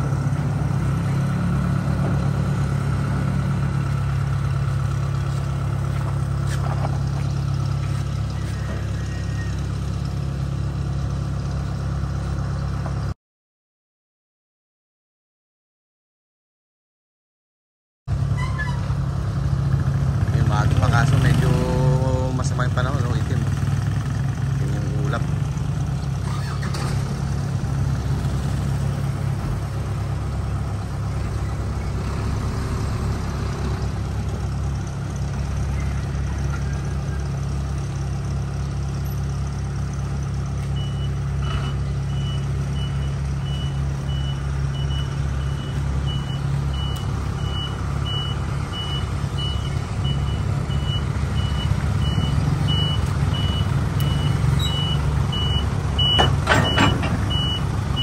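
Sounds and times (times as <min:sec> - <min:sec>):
truck engine running: 0:00.0 - 0:13.2, 0:18.1 - 0:58.0
reversing beeper: 0:08.3 - 0:09.7, 0:40.8 - 0:58.0.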